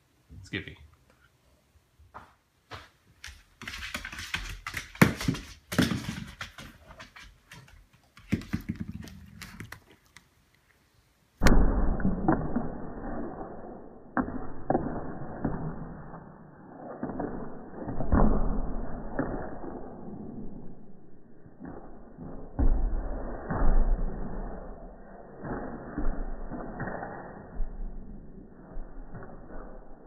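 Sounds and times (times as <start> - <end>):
dog claws tapping on wooden floor: 3.2 - 10.3
ball bouncing thuds: 4.7 - 7.6, 8.2 - 9.7.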